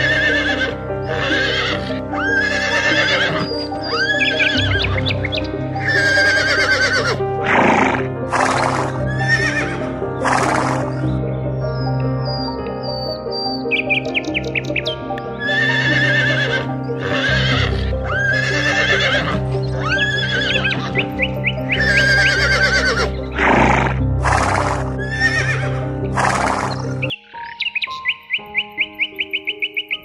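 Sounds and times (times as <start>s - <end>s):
horses whinnying: 0.0s - 11.0s, 15.4s - 21.1s, 21.7s - 27.1s
background music: 0.0s - 30.0s
bird chirps: 10.2s - 15.6s, 25.3s - 30.0s.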